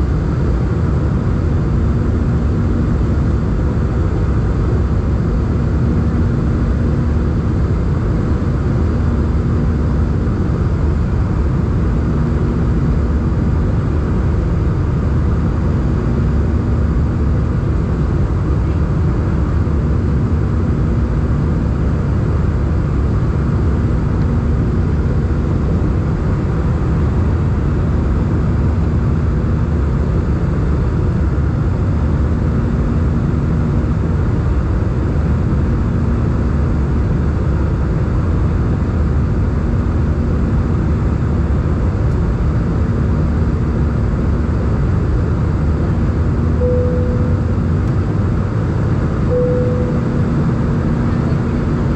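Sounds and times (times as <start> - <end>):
aircraft engine and airflow rumble: 0.0 - 51.9
low pulsing hum: 39.0 - 51.9.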